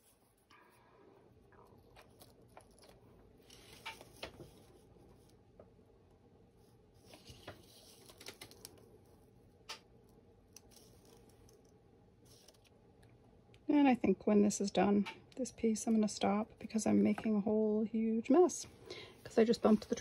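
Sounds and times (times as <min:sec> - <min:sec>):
light paper rustle: 0:07.0 - 0:09.2.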